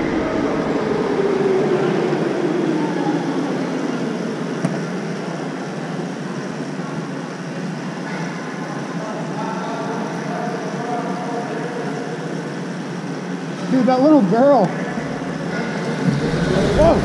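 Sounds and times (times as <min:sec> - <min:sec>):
wind rushing over microphone: 0:00.0 - 0:04.4, 0:14.7 - 0:17.0.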